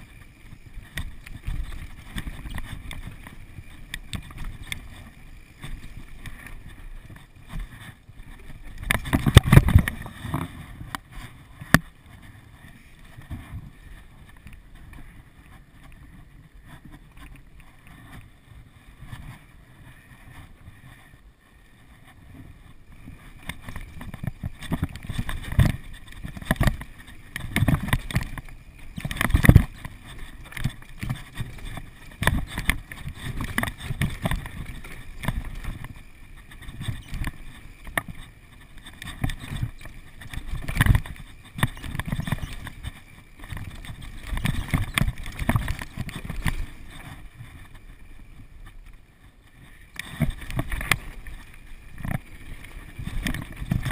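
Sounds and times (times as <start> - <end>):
bike rattling and knocking: 0.0 - 10.6, 23.4 - 47.8, 49.9 - 53.9
bike tyres rumbling over dirt: 0.0 - 53.9.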